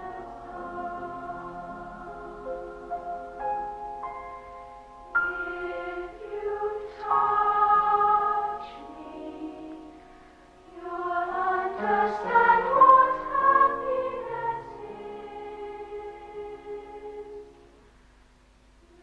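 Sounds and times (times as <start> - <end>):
youth choir singing: 0.0 - 2.8, 5.2 - 10.0, 10.7 - 17.5.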